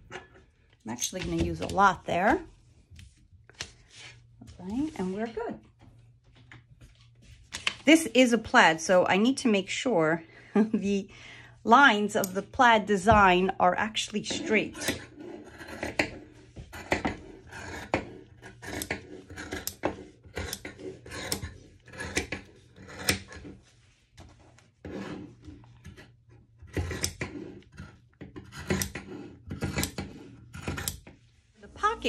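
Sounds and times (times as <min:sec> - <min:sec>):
fabric rustling and scraping: 0:00.0 - 0:07.7, 0:22.4 - 0:26.5.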